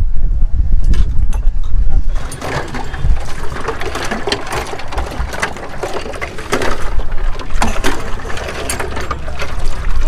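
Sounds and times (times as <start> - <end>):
knocks and crunching: 2.2 - 10.0.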